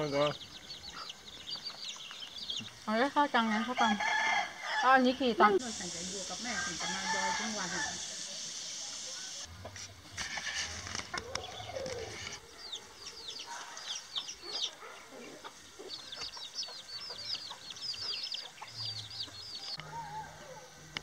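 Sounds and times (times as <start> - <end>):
chicks peeping: 0.0 - 2.8, 10.9 - 19.8
hen clucking: 5.6 - 9.5.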